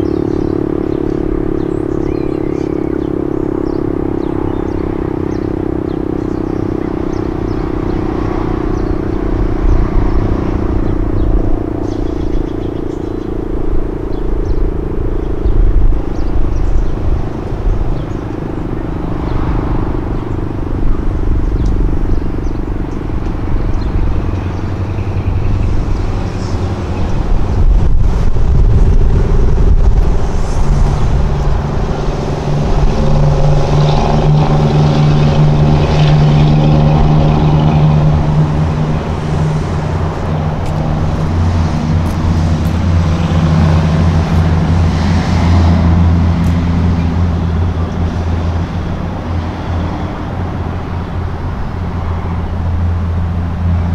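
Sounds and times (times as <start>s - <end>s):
wind rumble on microphone: 0.0s - 53.9s
warning siren winding down: 5.5s - 22.0s.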